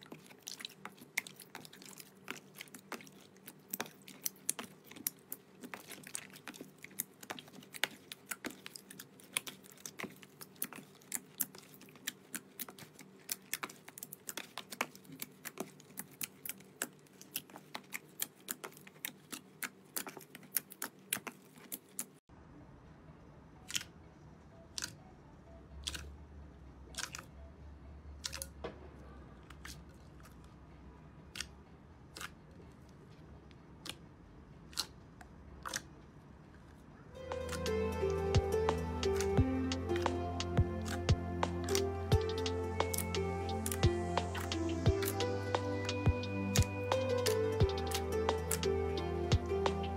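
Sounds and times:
low hum: 37.2s - 49.9s
slime crackling and popping: 37.3s - 45.9s.

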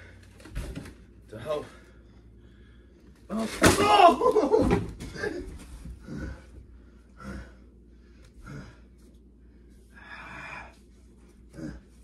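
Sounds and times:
person crying out: 3.3s - 5.4s.

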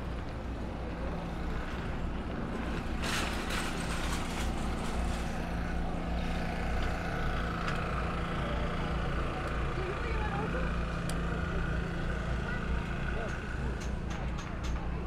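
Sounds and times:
train clattering: 2.5s - 5.4s, 13.2s - 15.0s.

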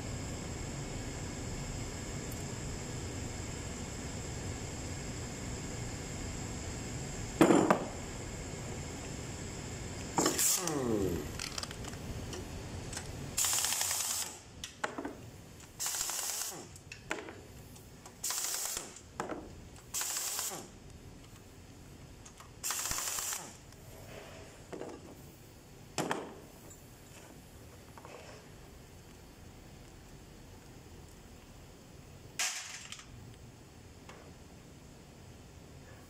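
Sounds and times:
falling whine: 10.0s - 12.0s
air tool hissing: 10.1s - 11.4s, 13.4s - 14.5s, 15.8s - 16.7s, 18.2s - 19.0s, 19.9s - 20.7s, 22.6s - 24.2s.

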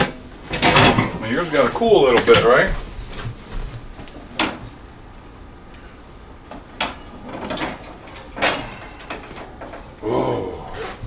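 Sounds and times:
kitchenware clatter: 0.0s - 1.3s.

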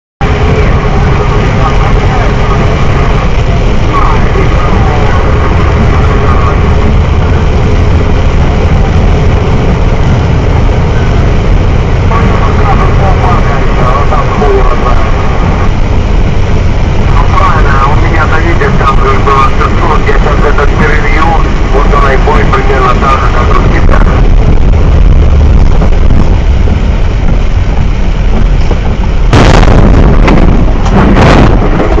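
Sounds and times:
truck engine and tyres rumbling: 0.2s - 32.0s
loud crash on truck cab: 29.3s - 32.0s.

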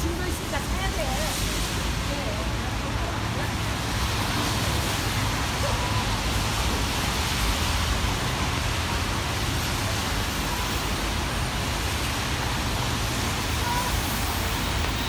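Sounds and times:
heavy rain falling: 0.0s - 15.0s.

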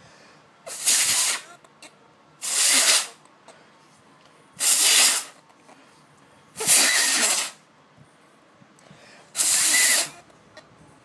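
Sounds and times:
air blasts hissing: 0.7s - 1.5s, 2.4s - 3.2s, 4.6s - 5.4s, 6.6s - 7.7s, 9.3s - 10.2s.

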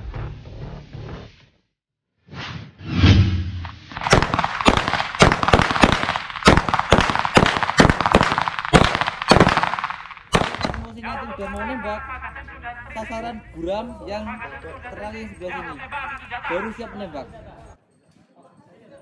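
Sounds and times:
rushing sound: 2.3s - 5.2s
gunshots: 2.9s - 11.2s.

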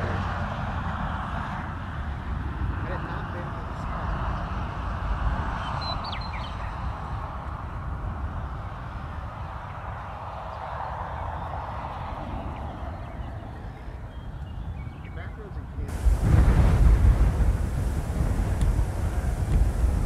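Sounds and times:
wind buffeting the microphone: 0.0s - 20.0s.

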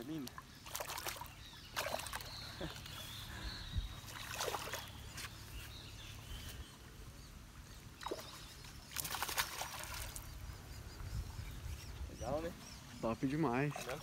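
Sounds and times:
fish splashing in water: 0.6s - 2.4s, 4.0s - 5.0s, 8.0s - 10.3s.

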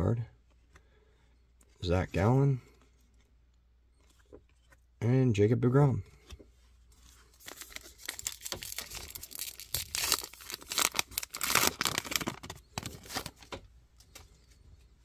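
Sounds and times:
crinkly wrapper tearing: 7.4s - 13.4s.

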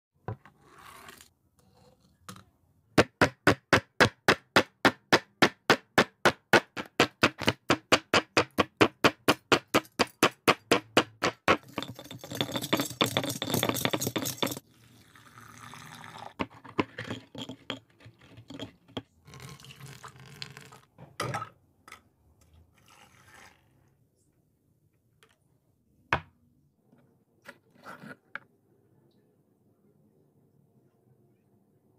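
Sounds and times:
stone pestle pounding in mortar: 3.0s - 14.6s
grinding and crunching: 9.7s - 14.6s
wooden stick stirring in cup: 10.0s - 14.6s, 15.8s - 20.8s.

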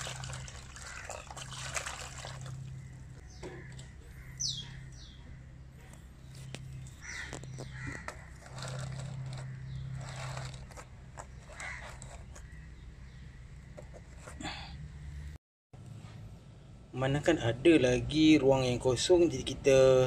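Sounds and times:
liquid trickling from bottle: 0.0s - 3.2s.

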